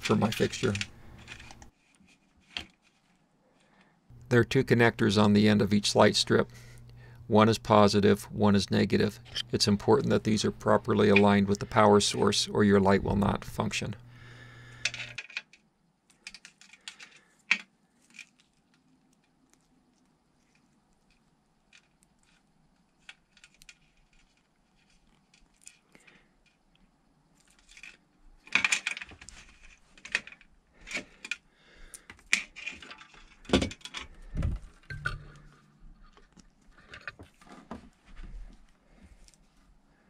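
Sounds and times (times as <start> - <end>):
light strip handling clicks and rustles: 0.0 - 1.8, 14.7 - 35.5.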